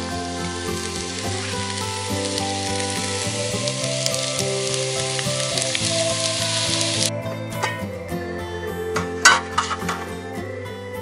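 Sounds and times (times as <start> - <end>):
food sizzling in a pan: 0.0 - 7.1
background music: 0.0 - 11.0.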